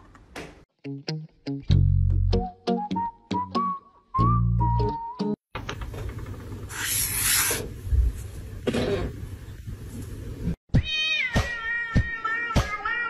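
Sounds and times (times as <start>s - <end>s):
marker squeaking on paper: 6.7s - 7.6s
cat meowing: 10.8s - 13.0s.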